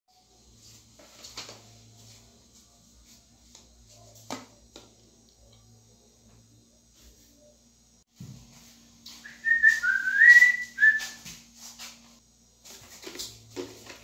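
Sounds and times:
person whistling: 9.2s - 11.2s.

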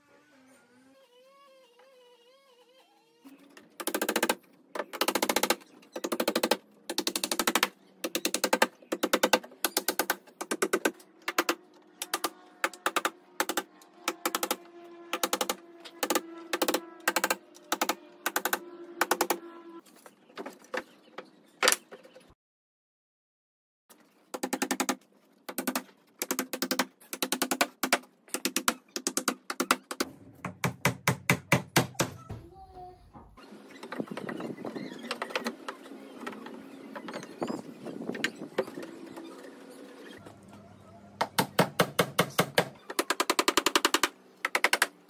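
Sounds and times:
hammer driving nails into wood: 3.8s - 19.4s, 24.3s - 32.3s, 41.2s - 45.0s.

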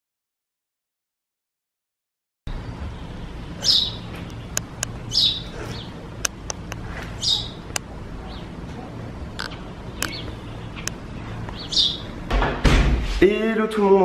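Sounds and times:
bird chirping: 2.5s - 12.3s
steady low hum: 2.5s - 14.0s
construction knocks: 12.3s - 13.2s.

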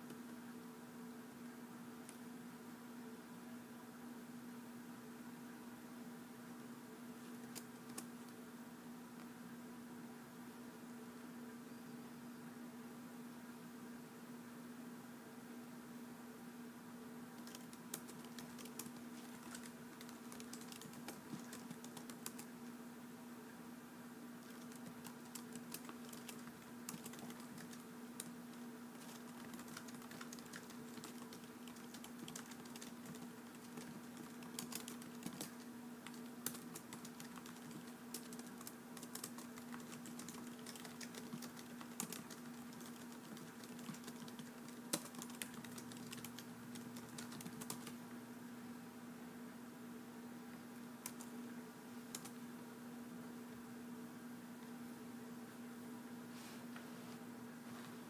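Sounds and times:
faint steady hum: 0.0s - 58.0s
typing on a keyboard: 7.4s - 8.1s, 17.4s - 22.5s, 24.4s - 48.0s, 51.0s - 51.4s, 52.1s - 52.4s.

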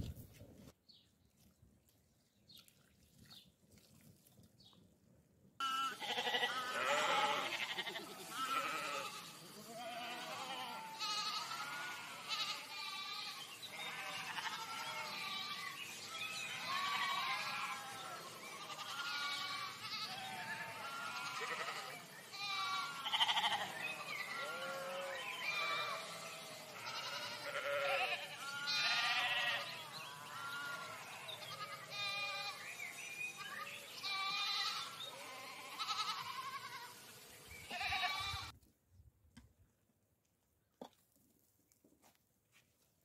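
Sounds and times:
lambs and goats bleating: 5.6s - 37.0s, 37.7s - 38.6s.

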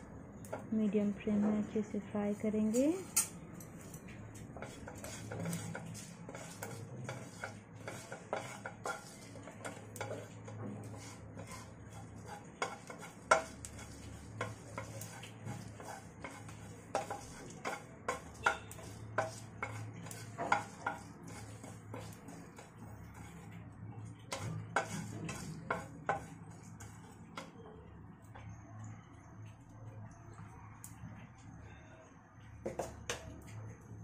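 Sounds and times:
spatula scraping seeds in a pan: 2.3s - 27.6s
spatula tapping a pan: 4.5s - 27.6s, 32.6s - 33.4s.

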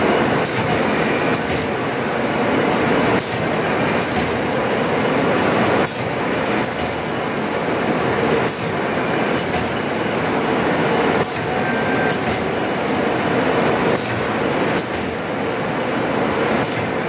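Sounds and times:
machine running: 6.1s - 17.0s.

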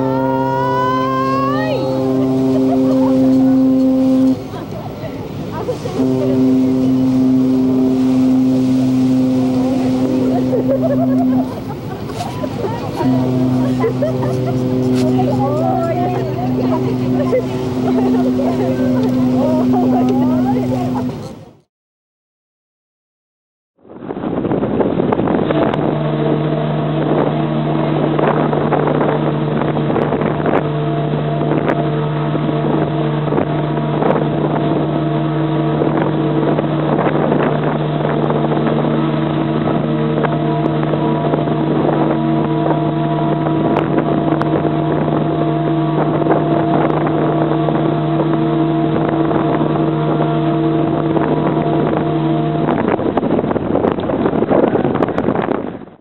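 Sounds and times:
steam whistle blast: 0.0s - 4.6s, 5.9s - 11.7s, 13.0s - 21.3s.

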